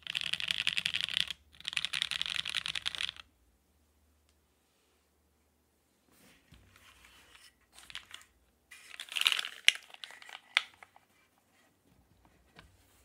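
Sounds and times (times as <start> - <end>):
keyboard rustling and sliding on cloth: 6.1 - 13.0.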